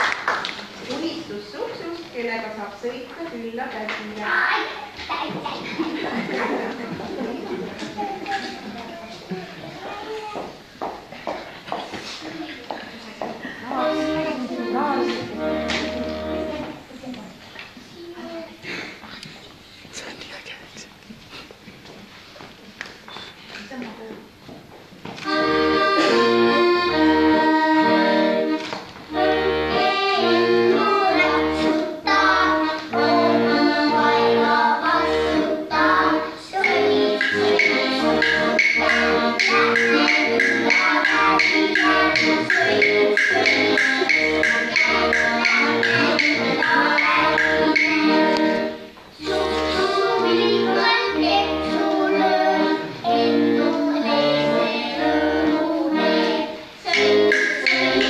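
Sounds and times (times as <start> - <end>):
accordion playing a tune: 13.5 - 16.8, 25.2 - 58.0
children singing: 13.6 - 16.8, 25.2 - 58.0.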